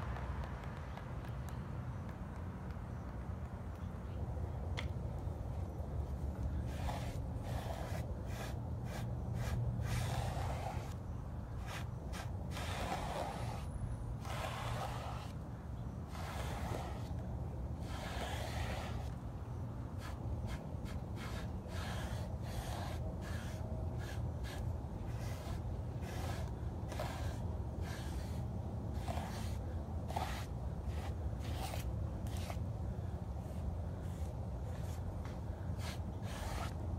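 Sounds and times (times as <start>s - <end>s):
sponge brush scraping canvas: 6.3s - 11.0s, 11.6s - 15.4s, 16.0s - 17.2s, 17.8s - 19.2s, 19.9s - 32.6s, 33.4s - 36.8s.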